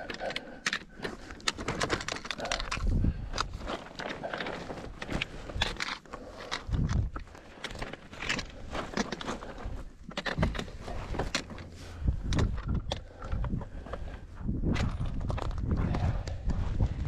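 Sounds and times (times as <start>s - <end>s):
dull low thumps: 12.0s - 17.0s.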